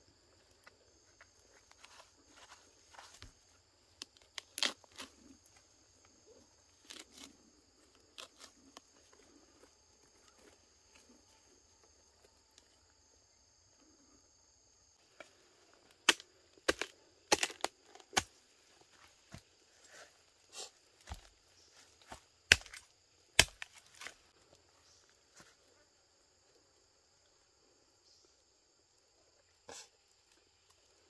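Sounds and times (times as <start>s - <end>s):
fibre tearing and crunching: 4.1s - 5.3s.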